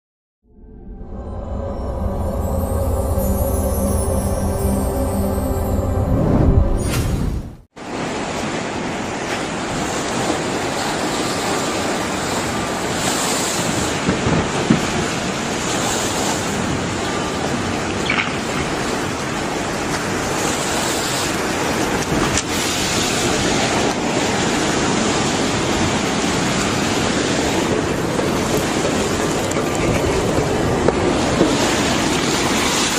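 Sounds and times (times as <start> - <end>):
rush of churning water: 7.8 - 32.9.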